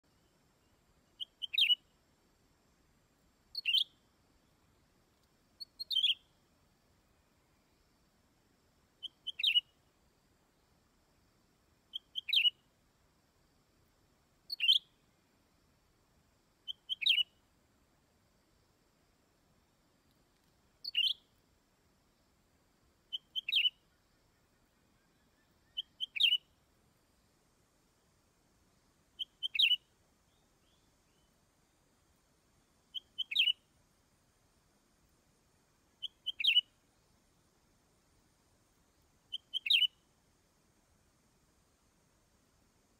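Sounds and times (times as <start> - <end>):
bird chirping call: 1.2 - 1.8, 3.6 - 4.0, 5.6 - 6.3, 9.0 - 9.7, 11.9 - 12.6, 14.5 - 14.9, 16.7 - 17.3, 20.8 - 21.2, 23.1 - 23.8, 25.0 - 26.5, 29.2 - 29.8, 32.9 - 33.6, 36.0 - 36.7, 39.3 - 40.0
bird calling: 5.6 - 6.2, 9.0 - 9.7, 29.2 - 29.8, 33.0 - 33.6, 36.0 - 36.7, 39.3 - 39.9.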